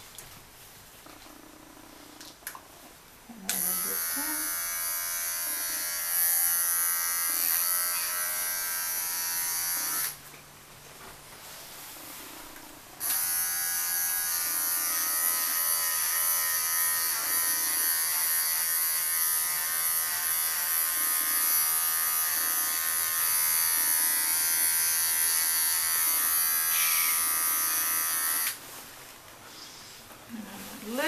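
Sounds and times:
electric pet clippers buzzing: 3.5s - 10.2s, 13.0s - 28.6s.

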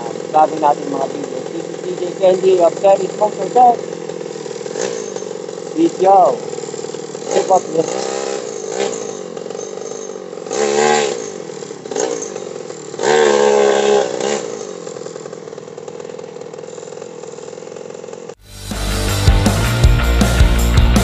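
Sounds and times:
motorcycle passing by: 0.0s - 18.3s
motorcycle engines in traffic: 0.0s - 18.4s.

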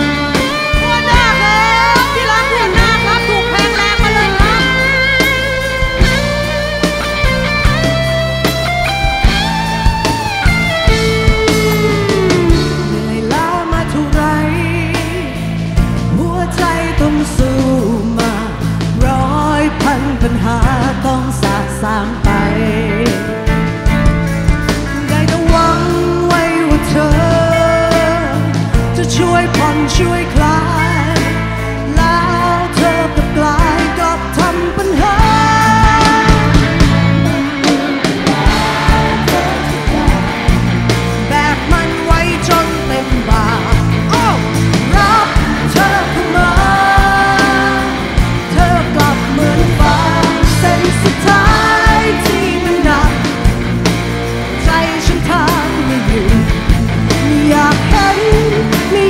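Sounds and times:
woman singing with vibrato: 0.0s - 6.2s, 31.9s - 53.4s, 57.2s - 59.0s
rock band playing: 0.0s - 59.0s
drum hits: 35.3s - 52.2s.

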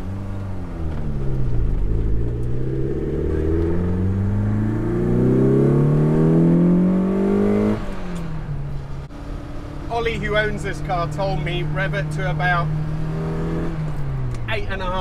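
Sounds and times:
car engine accelerating hard: 0.0s - 15.0s.

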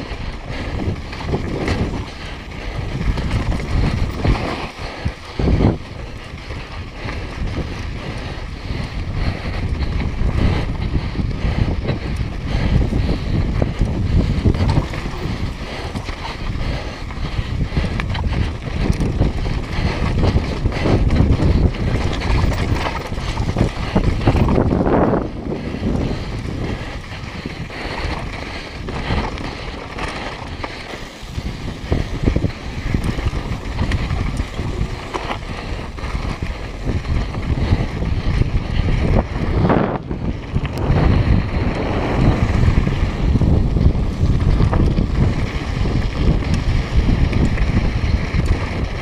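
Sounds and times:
tyres on dirt and gravel: 0.0s - 49.0s
wind buffeting microphone: 0.0s - 49.0s
bike knocks and rattles: 0.5s - 7.9s, 11.8s - 41.4s.

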